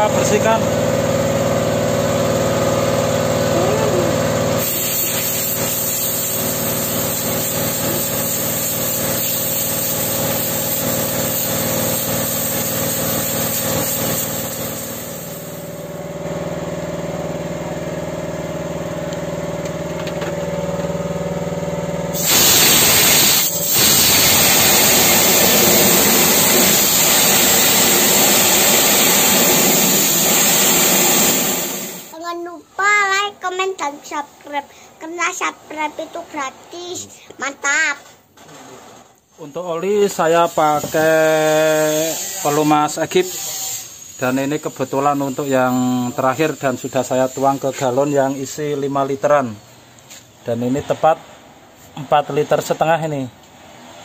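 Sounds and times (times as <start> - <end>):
air compressor engine running: 0.0 - 32.2, 39.9 - 54.0
compressed air hissing: 4.6 - 15.9, 22.2 - 32.2, 40.2 - 48.5.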